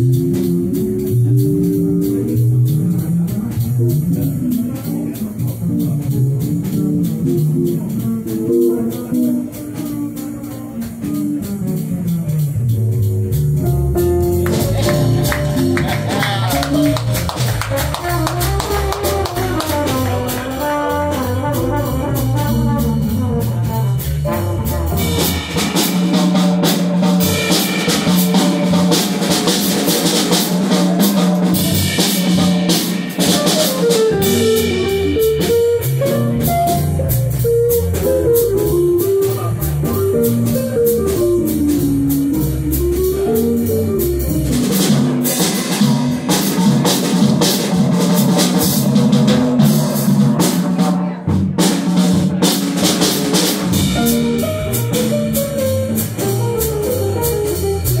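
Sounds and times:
small jazz band playing: 0.0s - 58.0s
melodic solo line: 33.8s - 45.0s.

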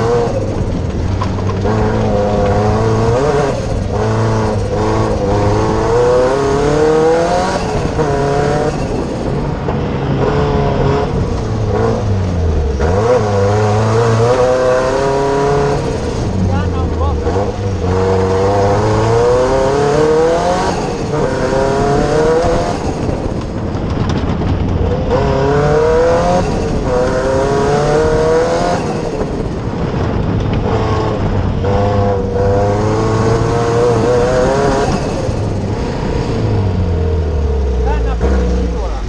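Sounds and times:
racing car engine revving: 0.0s - 39.0s.

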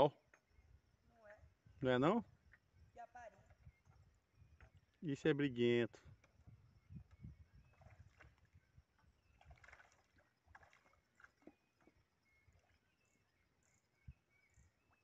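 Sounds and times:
fish splashing at surface: 9.4s - 11.6s.

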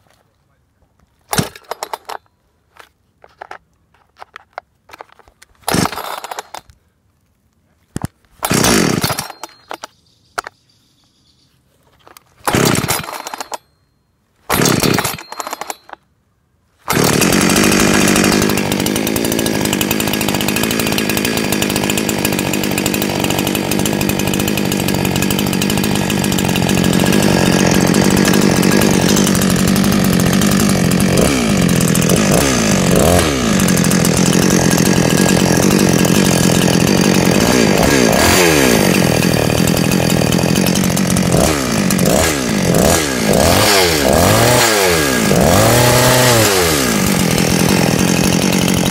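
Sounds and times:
chainsaw throttle revving: 1.3s - 2.2s, 5.7s - 6.7s, 8.4s - 9.6s, 12.4s - 13.6s, 14.5s - 16.0s, 16.8s - 48.9s
chainsaw engine idling: 1.3s - 2.3s, 5.7s - 6.6s, 8.4s - 9.8s, 12.4s - 13.8s, 14.5s - 16.0s, 16.9s - 48.9s.

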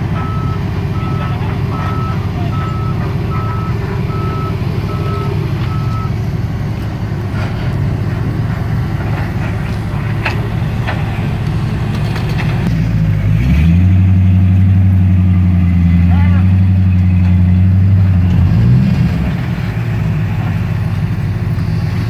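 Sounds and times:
engine revving: 0.0s - 22.0s
low engine rumble: 0.0s - 22.0s
reversing alarm beeping: 0.1s - 6.2s.

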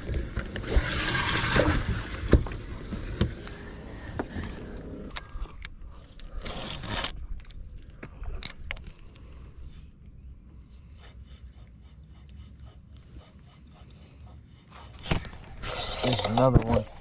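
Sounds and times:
fishing gear clicking and knocking: 15.0s - 17.0s.

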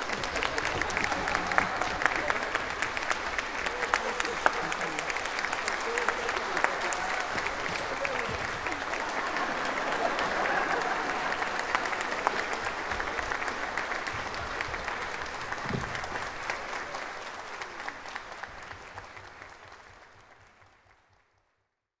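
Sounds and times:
audience applauding: 0.0s - 21.4s.

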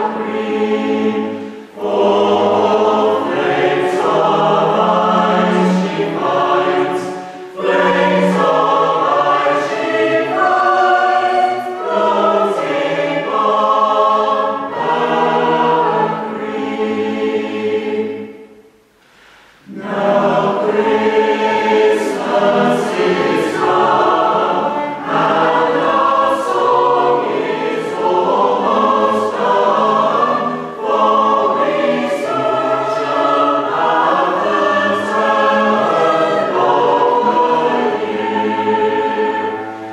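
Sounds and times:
mixed choir singing a carol: 0.0s - 39.9s
string band with cello: 1.8s - 11.0s, 19.6s - 39.9s.

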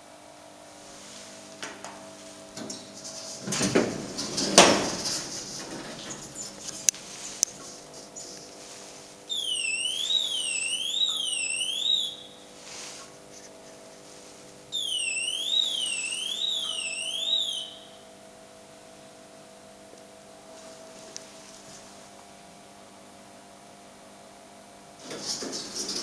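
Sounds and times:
steady low hum: 0.0s - 26.0s
electronic warbling lift alarm: 9.3s - 12.4s, 14.7s - 18.1s.

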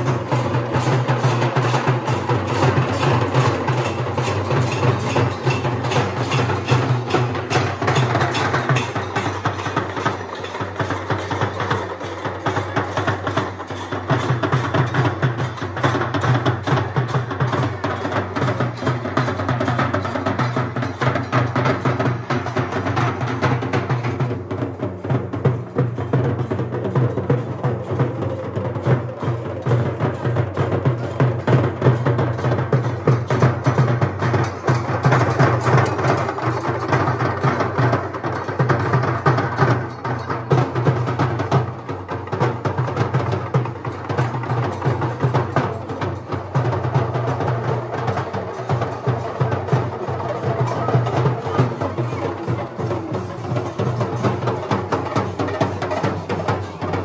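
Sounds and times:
fast drumming and percussion: 0.0s - 57.0s.

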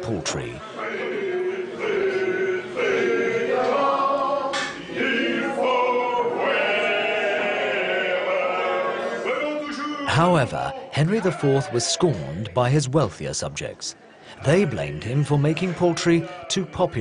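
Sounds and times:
group singing in chorus: 0.6s - 9.7s.

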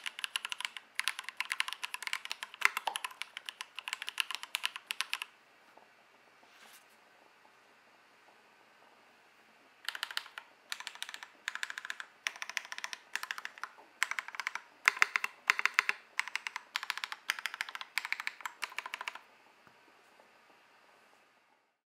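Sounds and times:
mechanical keyboard typing: 0.0s - 5.3s, 9.8s - 19.2s.

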